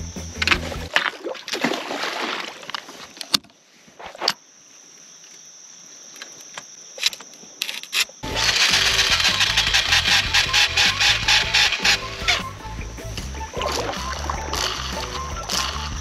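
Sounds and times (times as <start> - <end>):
water sloshing and splashing: 0.6 - 3.4, 13.1 - 15.2.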